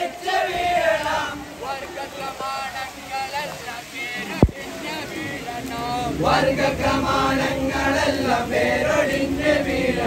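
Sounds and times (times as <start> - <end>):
men chanting in unison: 0.0 - 10.0.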